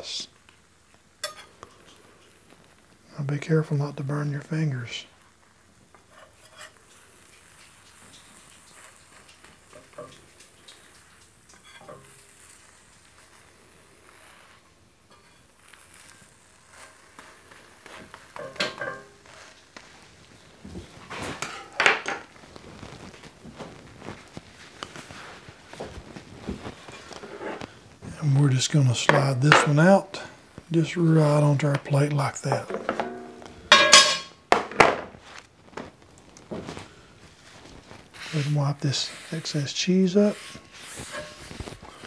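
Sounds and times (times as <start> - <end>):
butter sizzling in a pan: 0.1 - 34.5, 35.9 - 42.0
metal spatula scraping a pan: 6.0 - 19.6, 26.8 - 27.7, 32.5 - 34.4, 38.2 - 42.0.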